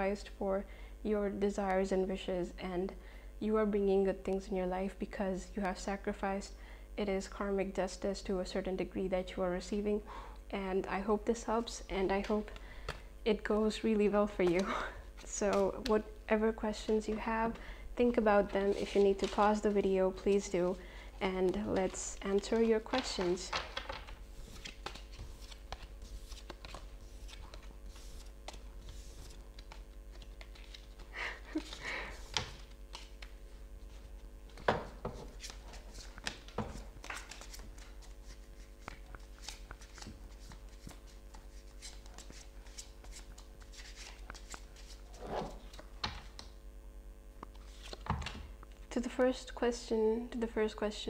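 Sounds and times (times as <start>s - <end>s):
faint hum: 0.0s - 51.0s
cards shuffling and slapping: 21.4s - 46.6s, 47.4s - 48.4s.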